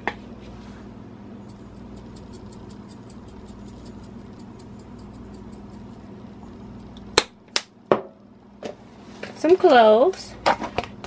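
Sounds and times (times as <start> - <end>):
steady low hum: 0.0 - 9.4
dried herbs ticking into pot: 1.4 - 7.4.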